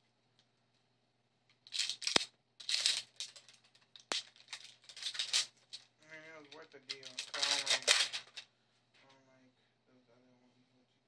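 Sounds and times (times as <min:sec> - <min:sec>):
plastic packaging crinkling and tearing: 0:01.7 - 0:05.9, 0:06.8 - 0:08.4.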